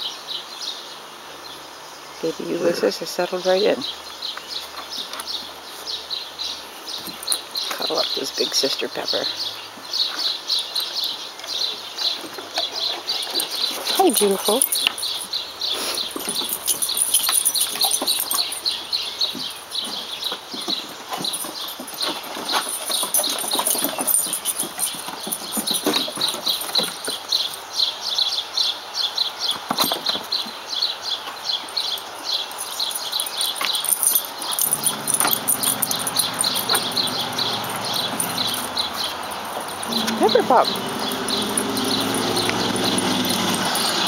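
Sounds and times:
dog claws clicking on wooden deck: 0:10.1 - 0:27.6, 0:29.4 - 0:30.6, 0:31.2 - 0:44.0.

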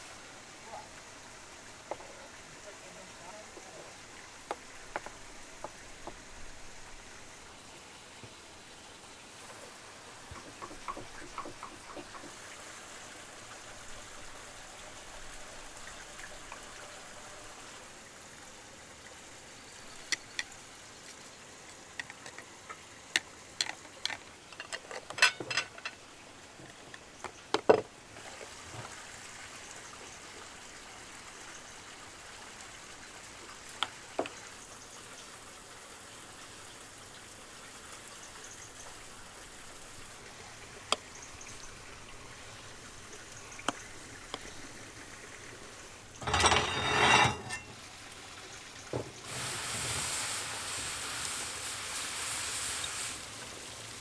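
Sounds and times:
steady hiss: 0:00.0 - 0:54.0
metal lids clicking on glass jars: 0:23.6 - 0:26.0, 0:46.2 - 0:47.8.

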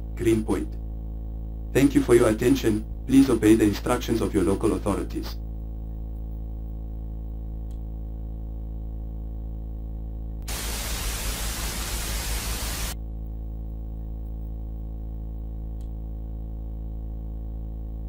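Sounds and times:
low electrical hum: 0:00.0 - 0:18.0
harsh static burst: 0:10.4 - 0:13.0.

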